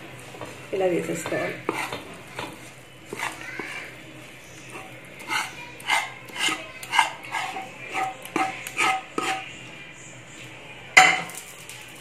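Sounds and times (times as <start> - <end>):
ladle clinking against a pan: 4.8 - 9.5.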